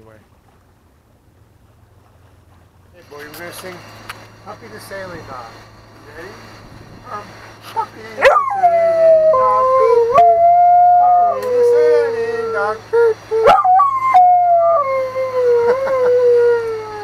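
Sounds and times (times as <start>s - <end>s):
dog howling: 8.2s - 17.0s.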